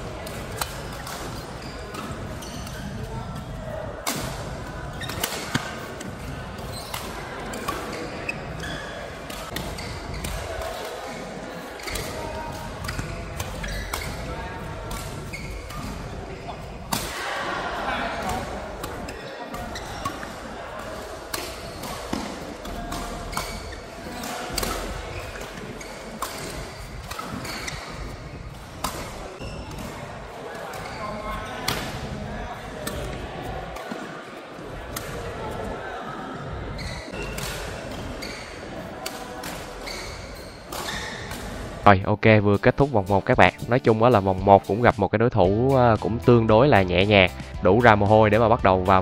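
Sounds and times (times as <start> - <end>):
racket hitting shuttlecock: 0.2 - 2.9, 4.0 - 11.0, 11.7 - 14.3, 14.9 - 16.2, 18.1 - 29.9, 31.7 - 32.2, 32.8 - 34.1, 37.2 - 41.6
shoes squeaking on court: 0.2 - 3.5, 4.9 - 16.9, 18.2 - 35.7, 36.4 - 41.7.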